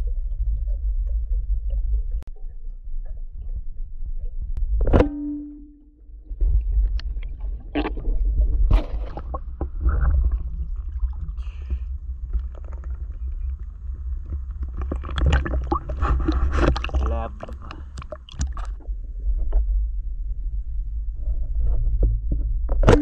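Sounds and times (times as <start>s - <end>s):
low underwater rumble: 0.0s - 23.0s
short hum: 4.7s - 6.2s
water sloshing and splashing: 6.4s - 18.8s.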